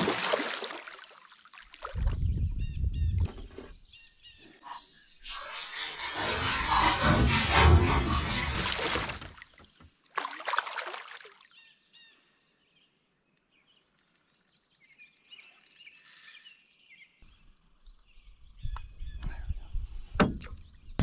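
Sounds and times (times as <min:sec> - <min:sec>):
small birds chirping: 0:11.5 - 0:21.0.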